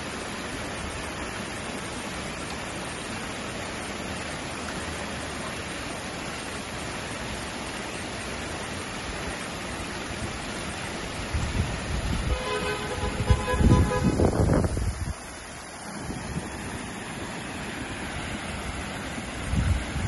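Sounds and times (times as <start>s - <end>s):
water fountain splashing: 0.0s - 20.0s
wind buffeting microphone: 11.2s - 15.3s, 19.4s - 20.0s.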